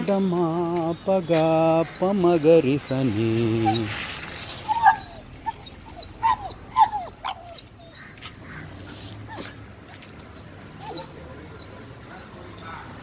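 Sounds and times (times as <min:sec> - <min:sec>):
dog whining: 0:03.5 - 0:03.9, 0:04.5 - 0:12.3.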